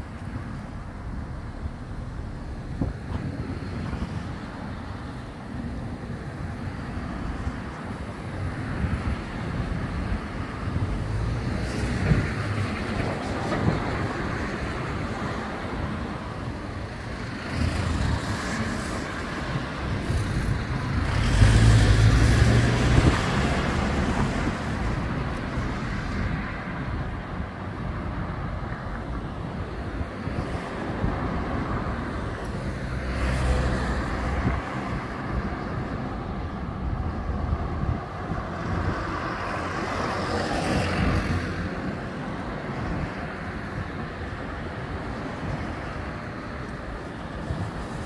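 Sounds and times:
passing cars: 0.0s - 48.0s
loud vehicle passing: 17.4s - 25.9s.

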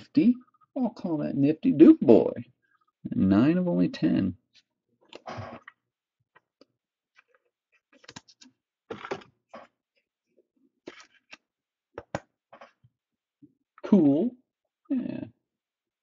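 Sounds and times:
cards rustling: 7.2s - 9.3s, 10.8s - 11.4s.

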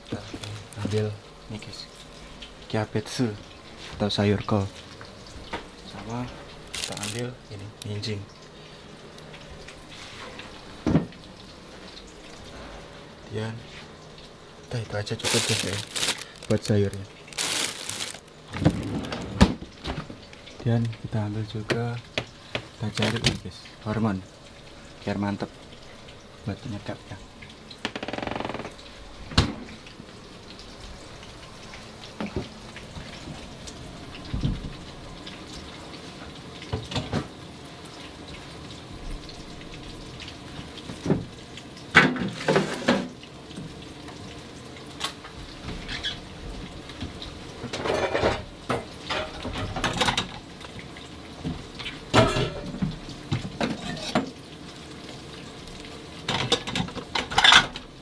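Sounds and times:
dishes and colander clattering: 47.7s - 50.3s, 52.1s - 52.8s, 56.3s - 57.8s.

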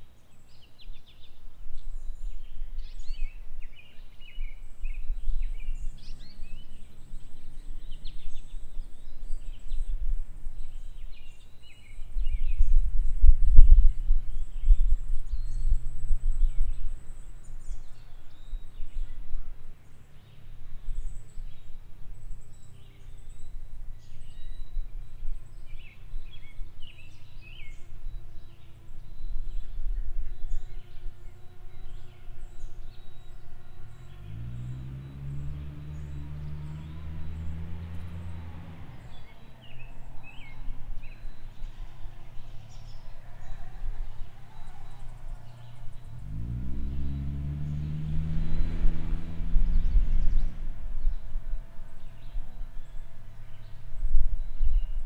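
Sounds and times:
small birds chirping: 0.0s - 55.0s
low rumble: 31.7s - 55.0s
deep rising sound: 34.1s - 42.7s, 44.0s - 52.9s.

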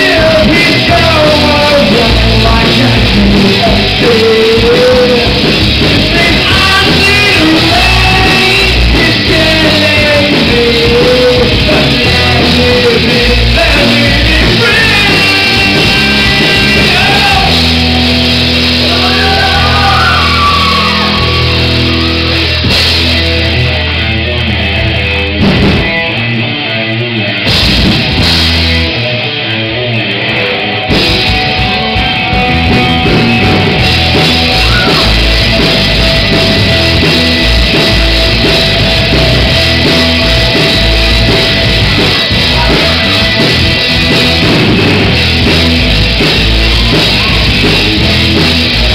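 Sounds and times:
person singing: 0.0s - 18.2s, 33.1s - 44.4s
live rock band playing: 0.0s - 48.9s.

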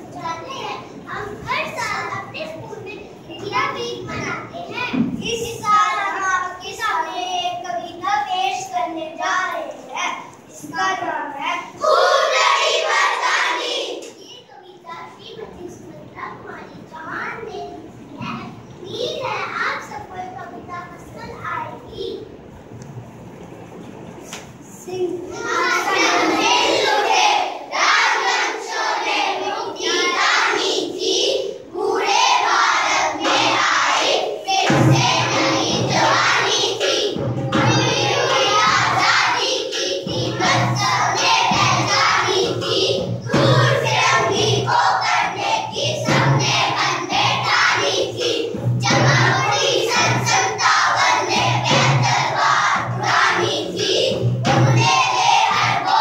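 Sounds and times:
children singing in unison: 11.8s - 14.0s, 25.3s - 56.0s
backing music: 33.2s - 56.0s.

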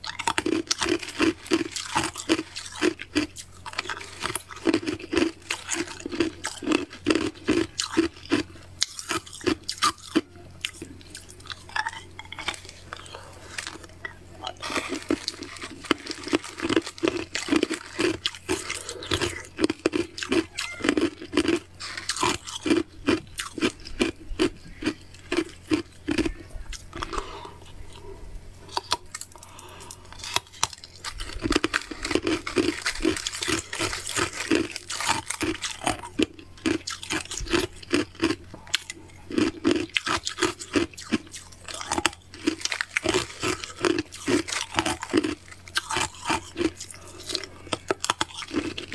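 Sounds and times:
ice being chewed: 0.0s - 48.9s.

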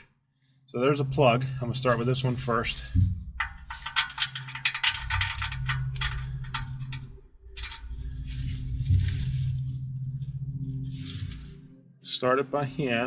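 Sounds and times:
metallic clicking and rattling: 2.4s - 9.6s.

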